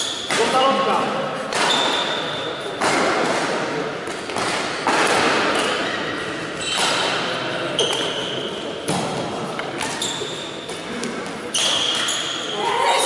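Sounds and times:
sharp knocks echoing in hall: 0.0s - 12.8s
faint high squeaks: 9.9s - 10.6s, 11.5s - 13.0s.

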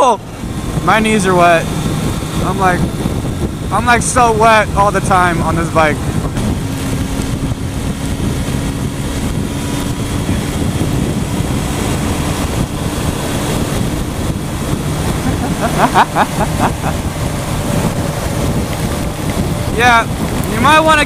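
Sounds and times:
motorcycle engine: 0.0s - 21.0s
wind rushing on microphone: 0.0s - 21.0s.

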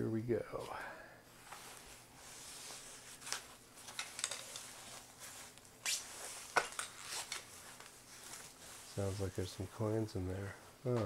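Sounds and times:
foam and paper rustling: 1.5s - 9.9s.

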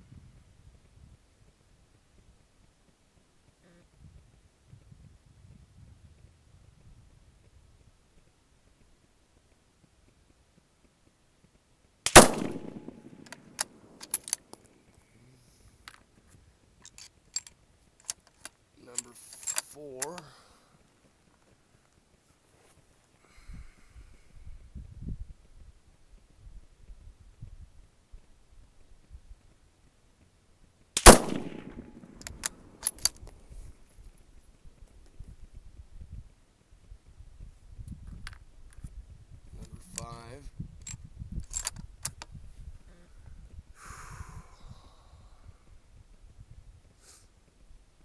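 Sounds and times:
rifle shot: 12.1s - 14.4s, 31.0s - 33.2s
rifle bolt clicking: 12.1s - 14.5s, 31.0s - 33.3s
rifle bolt metallic clicks: 12.1s - 14.6s, 16.8s - 20.3s, 31.0s - 33.4s, 40.8s - 42.3s.

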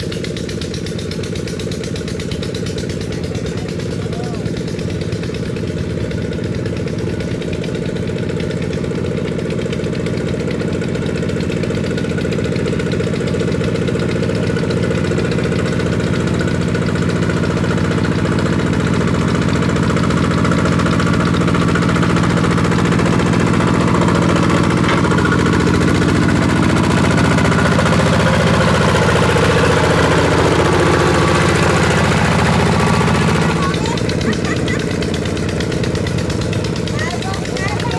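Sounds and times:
diesel engine knocking: 0.0s - 37.9s.

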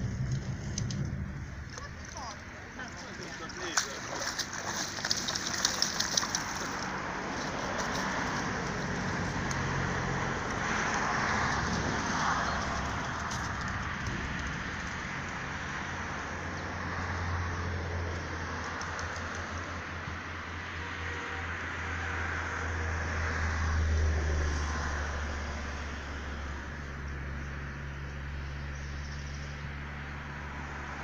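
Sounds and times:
steady rushing noise: 0.0s - 3.5s
dog splashing in water: 3.0s - 9.1s.

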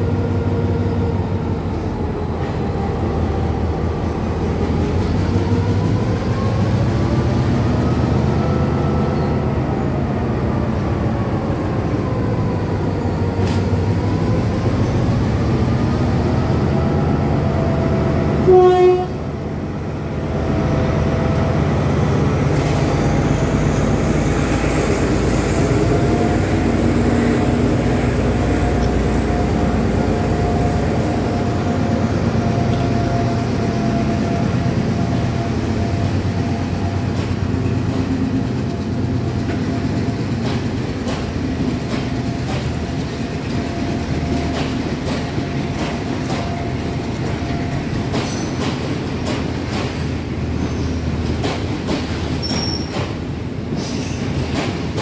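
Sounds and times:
diesel locomotive engine drone: 0.0s - 55.0s
train wheels clicking over rail joints: 34.9s - 55.0s.

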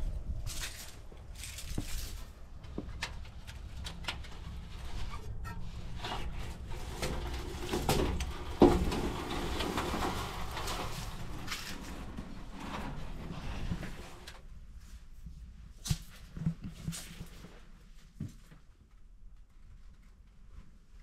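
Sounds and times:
glass door creaking and scraping: 3.3s - 14.4s.

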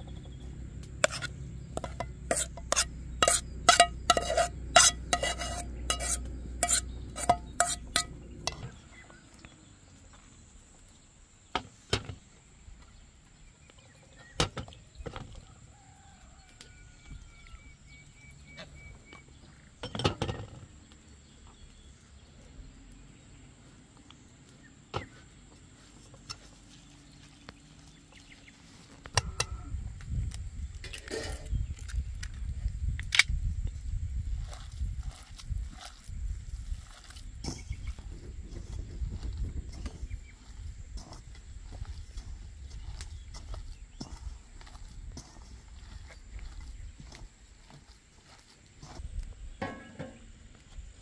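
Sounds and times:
metal spoon clinking in bowl: 1.1s - 8.7s.

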